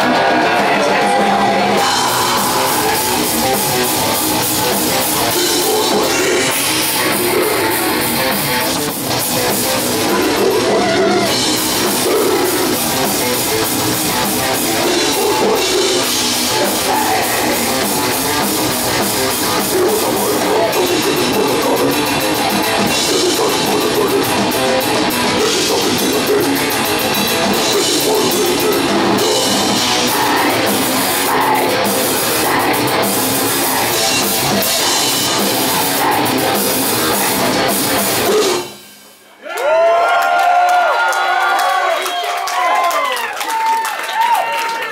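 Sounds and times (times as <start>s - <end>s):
fast drumming on drum kit: 0.0s - 38.8s
bass guitar: 0.0s - 38.9s
distorted electric guitars: 0.0s - 39.2s.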